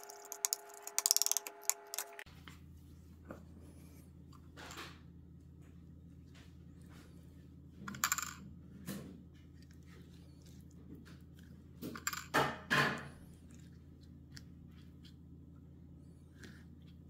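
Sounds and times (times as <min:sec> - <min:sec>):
brush clinking and scraping bowl: 0:00.0 - 0:02.3
low room hum: 0:00.0 - 0:17.0.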